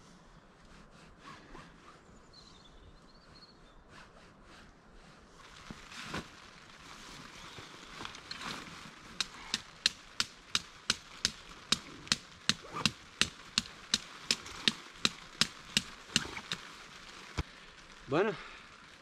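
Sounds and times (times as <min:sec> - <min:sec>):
hammering a stake: 0:09.2 - 0:16.6.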